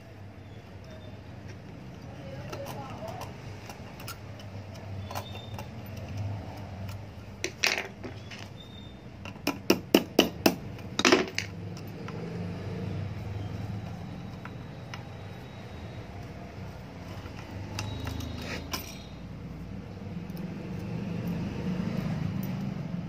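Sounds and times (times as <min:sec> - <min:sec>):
metal parts clinking on iron: 0:10.8 - 0:12.0, 0:17.1 - 0:19.2.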